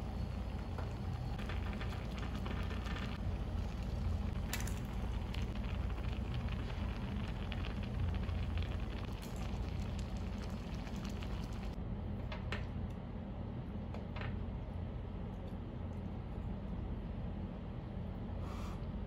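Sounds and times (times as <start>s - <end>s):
broth simmering and sizzling: 0.0s - 11.8s
gas burner hum: 0.0s - 13.1s.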